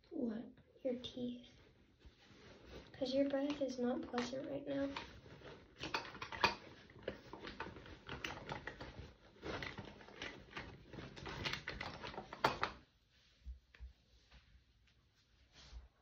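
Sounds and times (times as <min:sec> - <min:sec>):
rapid irregular clicking and rattling: 0:03.4 - 0:12.8.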